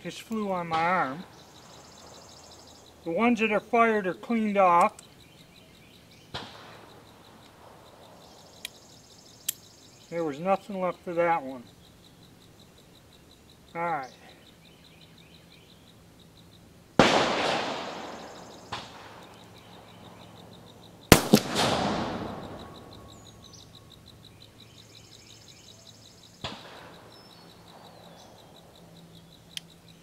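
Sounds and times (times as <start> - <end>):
revolver shots with rolling echo: 6.3 - 6.9, 17.0 - 19.3, 21.1 - 23.2, 26.4 - 27.1
sharp gunshot crack: 6.3 - 6.9, 17.0 - 19.3, 21.1 - 22.9, 26.4 - 27.1.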